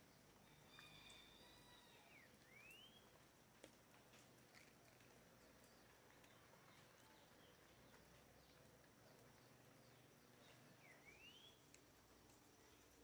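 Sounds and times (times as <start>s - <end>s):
faint bird chirps: 0.4s - 3.1s, 5.6s - 11.8s.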